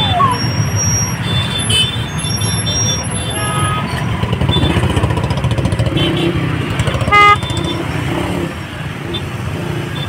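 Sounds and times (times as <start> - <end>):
motorcycle engines idling: 4.1 - 10.0
vehicle horn blast: 7.1 - 7.8.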